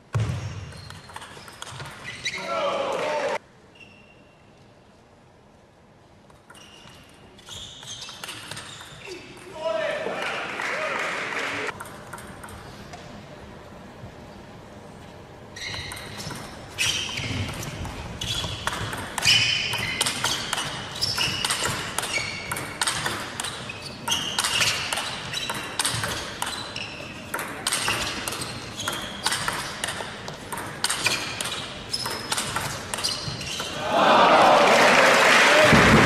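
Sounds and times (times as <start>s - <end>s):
table tennis ball pinging: 15.7s - 33.8s.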